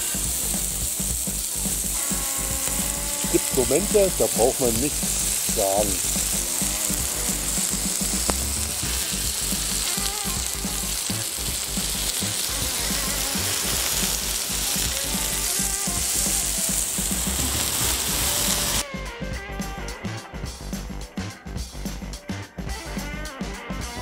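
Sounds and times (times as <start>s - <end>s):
meat sizzling on a grill plate: 0.0s - 18.8s.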